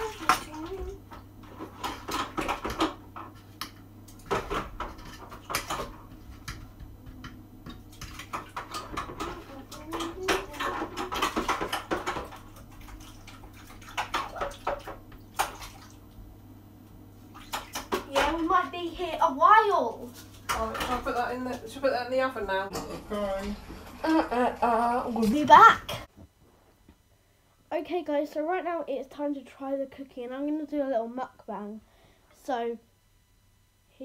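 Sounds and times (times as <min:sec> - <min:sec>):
water running: 0:00.0 - 0:16.5, 0:17.1 - 0:26.1.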